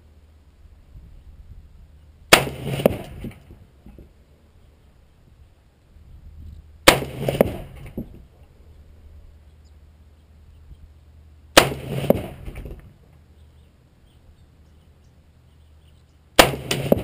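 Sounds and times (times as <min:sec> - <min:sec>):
rifle shots with echo: 0:02.3 - 0:03.4, 0:06.9 - 0:08.0, 0:11.6 - 0:12.8, 0:16.4 - 0:17.0.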